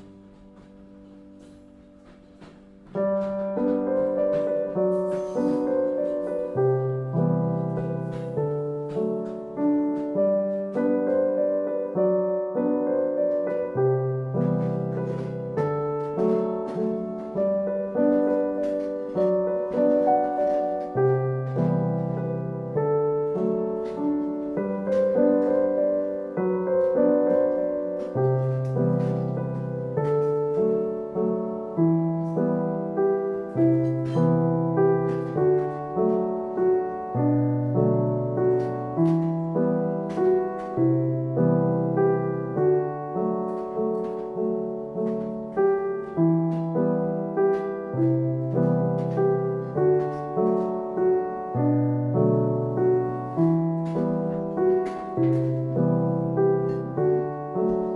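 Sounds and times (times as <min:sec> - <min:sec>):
calm piano music: 0:00.0 - 0:57.9.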